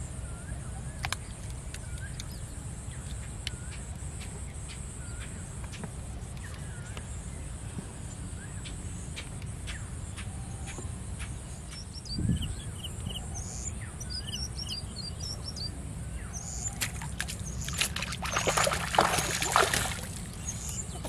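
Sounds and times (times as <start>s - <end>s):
small birds chirping: 8.0s - 21.0s
water splashing and sloshing: 16.6s - 21.0s.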